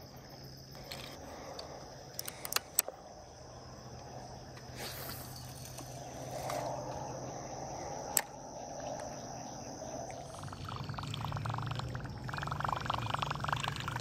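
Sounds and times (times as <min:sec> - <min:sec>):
insect chorus: 0:00.0 - 0:14.0
fishing reel rattling whir: 0:10.4 - 0:14.0.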